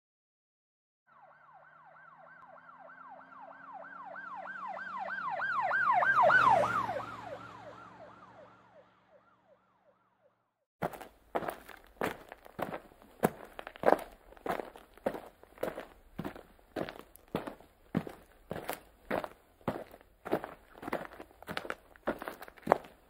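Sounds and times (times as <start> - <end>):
police siren yelping: 1.1 - 10.3
sharp footsteps: 10.8 - 23.0.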